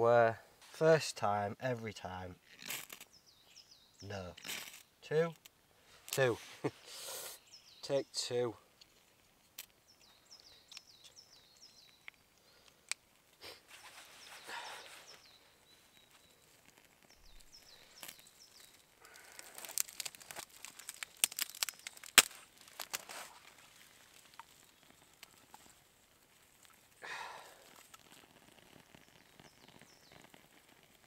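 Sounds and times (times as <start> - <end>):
kindling fire crackling: 2.2 - 7.8, 8.6 - 31.0
songbirds singing: 3.0 - 5.4, 7.4 - 8.6, 9.6 - 13.0, 13.7 - 22.8, 23.5 - 25.8, 27.1 - 30.6.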